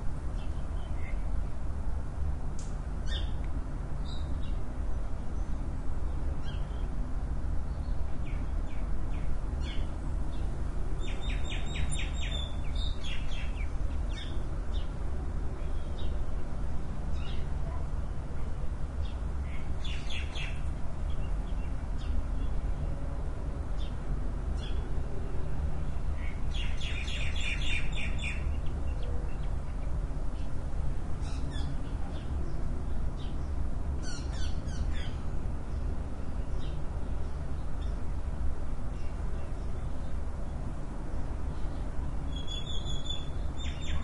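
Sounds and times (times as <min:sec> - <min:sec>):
steady low rumble: 0:00.0 - 0:42.4
small birds chirping: 0:00.3 - 0:01.3, 0:02.6 - 0:03.4, 0:04.0 - 0:07.0, 0:07.6 - 0:15.0, 0:15.6 - 0:16.4, 0:17.1 - 0:17.8, 0:18.4 - 0:22.9, 0:26.0 - 0:30.6, 0:31.2 - 0:38.0, 0:41.3 - 0:44.0.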